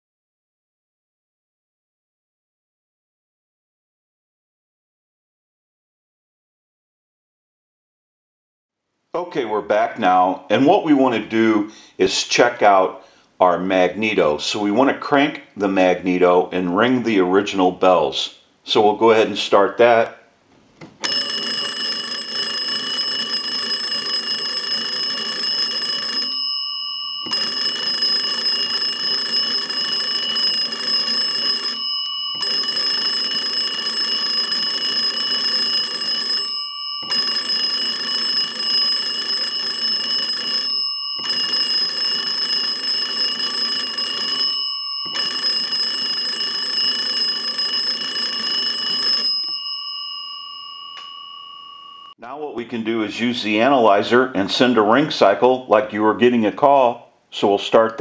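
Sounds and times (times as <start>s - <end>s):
telephone bells ringing: 21.0s - 52.2s.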